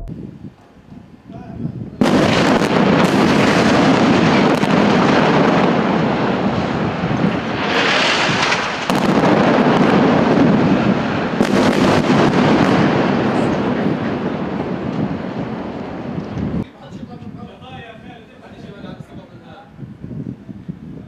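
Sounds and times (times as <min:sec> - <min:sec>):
explosion blasts: 0:02.0 - 0:16.6.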